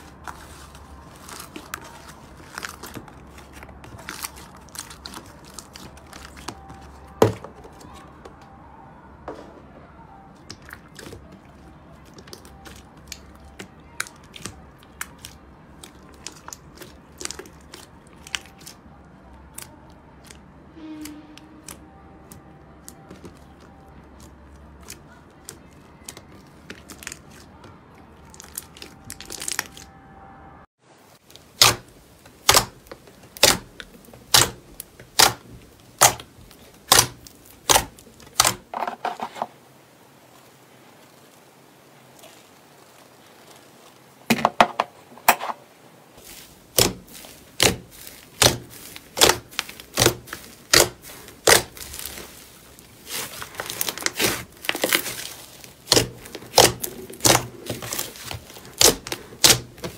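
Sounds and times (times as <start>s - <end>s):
slime squeezed by hand: 46.2s - 59.9s.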